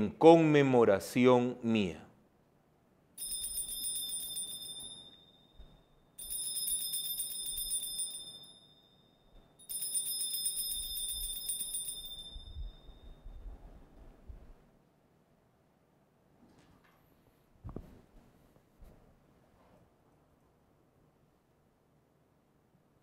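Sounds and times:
small bells jingling: 3.2 - 5.6, 6.2 - 13.3.

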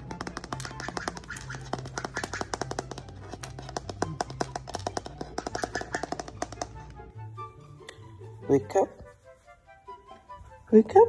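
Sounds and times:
parrot beak clicking and tapping: 0.0 - 7.0.

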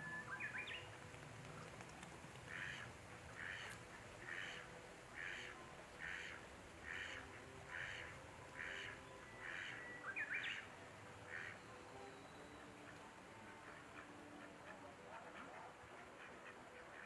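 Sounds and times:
bird chirping whistles: 0.0 - 0.9.

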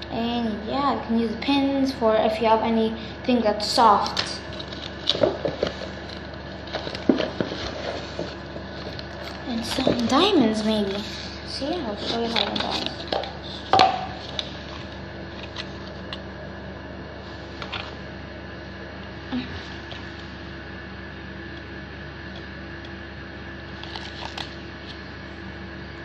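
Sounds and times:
steady background hum: 0.0 - 26.0
small objects tapping and rustling: 4.5 - 10.1.

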